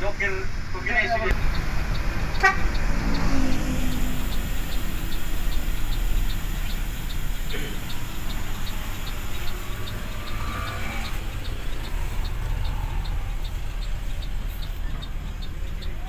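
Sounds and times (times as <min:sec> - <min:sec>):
bus diesel engine running: 0:00.0 - 0:16.0
light regular ticking: 0:00.0 - 0:16.0
road noise: 0:00.0 - 0:16.0
steady rain: 0:00.0 - 0:16.0.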